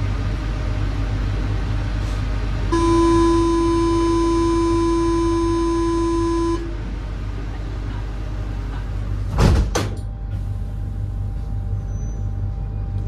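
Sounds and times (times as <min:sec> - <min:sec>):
train carriage rumbling: 0:00.0 - 0:13.0
door warning buzzer: 0:02.7 - 0:06.7
sliding doors banging shut: 0:08.8 - 0:10.5.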